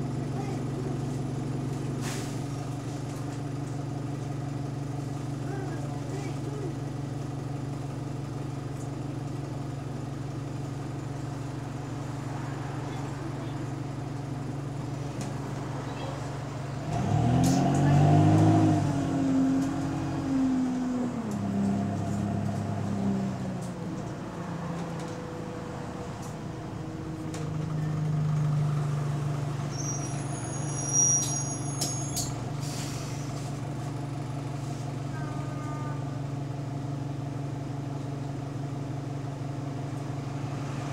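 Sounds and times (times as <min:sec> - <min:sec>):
bus diesel engine revving: 0:10.6 - 0:37.4
high squeak: 0:29.7 - 0:32.4.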